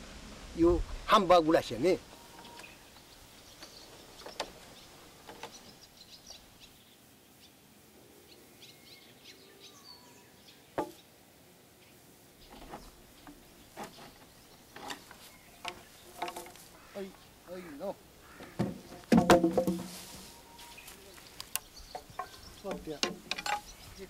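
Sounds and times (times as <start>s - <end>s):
faint bird chirps: 2.1s - 7.6s, 20.2s - 24.0s
knocks and clicks of logs and wire: 3.6s - 5.6s, 10.8s - 11.0s, 12.5s - 16.8s, 18.3s - 20.2s, 21.2s - 23.9s.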